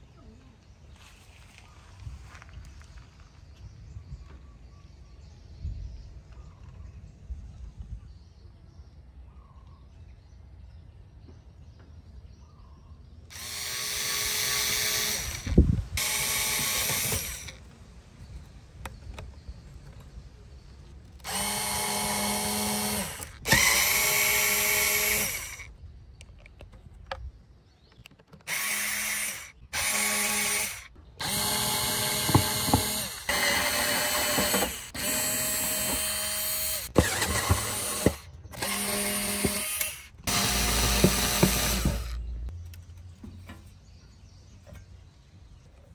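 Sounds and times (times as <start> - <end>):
electric screwdriver whining: 13.3 - 17.6, 21.2 - 25.7, 28.4 - 42.2.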